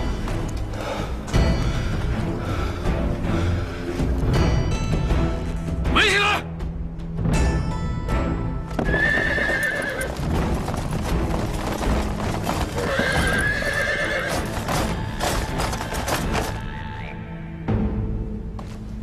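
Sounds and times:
background music: 0:00.0 - 0:19.0
horse hoofbeats: 0:08.7 - 0:16.6
horse neighing: 0:08.8 - 0:10.4, 0:12.2 - 0:16.6.

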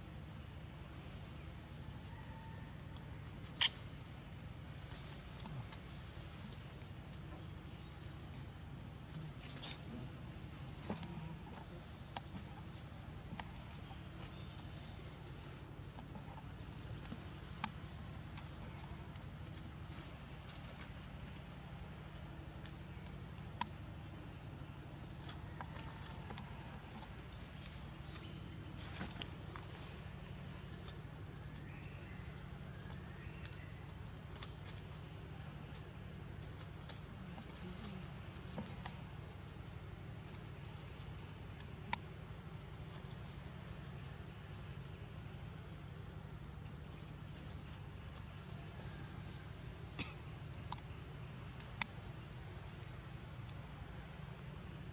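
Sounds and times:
insect chorus drone: 0:00.0 - 0:54.9.

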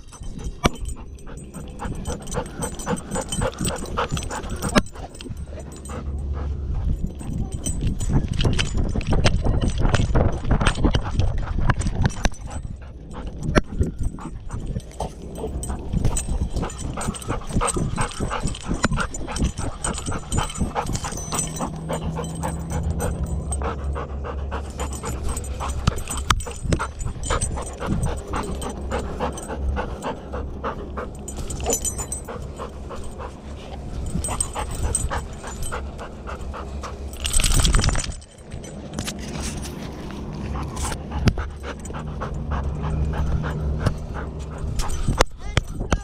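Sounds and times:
dog panting fast: 0:00.0 - 0:37.9, 0:40.3 - 0:45.9
harness knocking and jostling: 0:00.0 - 0:46.0.

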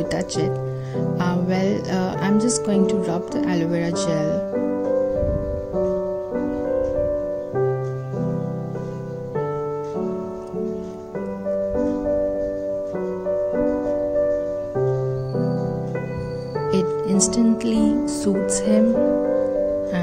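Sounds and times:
gentle piano music: 0:00.0 - 0:20.0.

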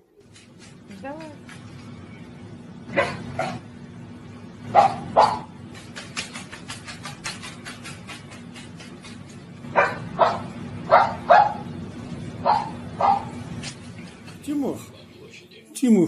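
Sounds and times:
dog barking: 0:02.9 - 0:03.6, 0:04.7 - 0:05.6, 0:09.7 - 0:11.7, 0:12.4 - 0:13.4.

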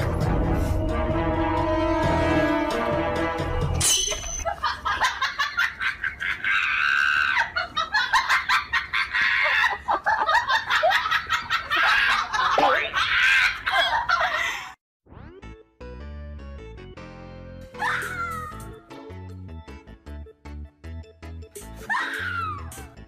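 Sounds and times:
high-pitched cackling laughter: 0:04.4 - 0:14.7.

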